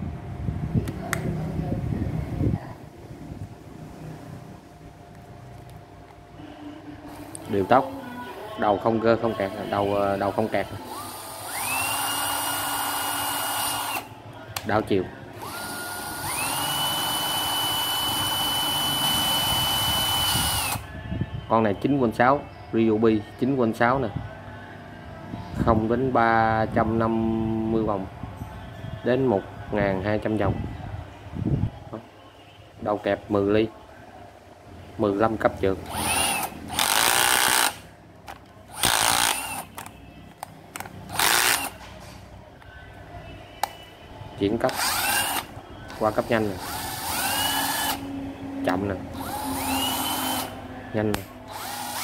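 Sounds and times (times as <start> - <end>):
cordless drill motor whine: 9.5 - 14.1, 15.4 - 20.9, 35.9 - 37.8, 38.7 - 39.9, 41.1 - 41.8, 44.7 - 48.0, 49.2 - 50.6, 51.5 - 52.0.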